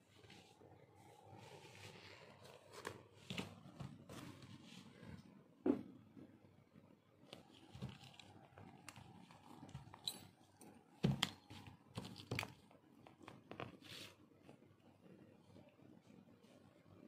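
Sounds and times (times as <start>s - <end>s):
journal rustling and scraping: 0.1s - 5.2s, 7.3s - 10.0s, 11.0s - 14.6s.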